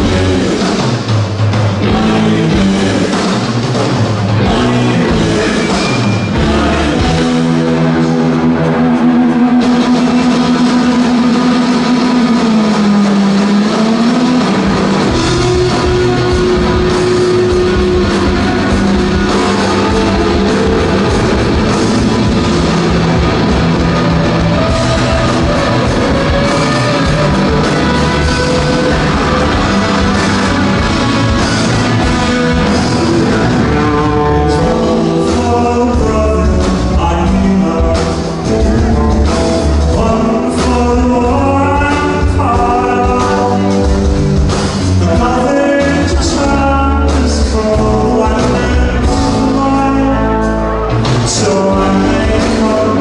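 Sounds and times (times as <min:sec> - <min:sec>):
live rock band: 0:00.0 - 0:53.0
guitar line of quick notes: 0:04.3 - 0:41.1.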